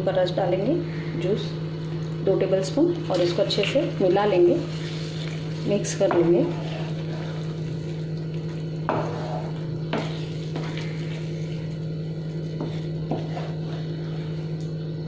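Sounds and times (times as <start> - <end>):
low hum: 0.0 - 15.0
spatula scraping a pan: 6.1 - 7.7, 8.9 - 11.1, 12.6 - 14.5.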